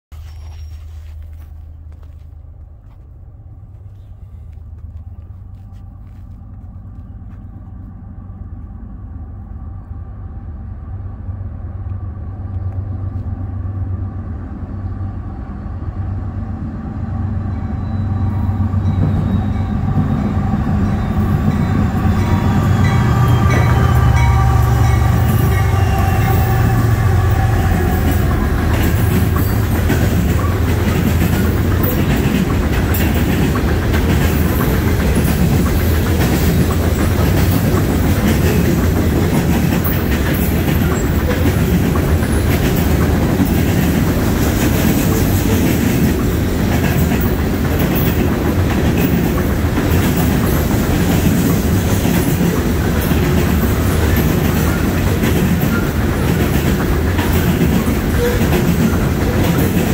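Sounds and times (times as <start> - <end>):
locomotive rumble: 0.1 - 59.9
rail hum: 0.1 - 59.9
freight cars rolling by: 0.2 - 59.9.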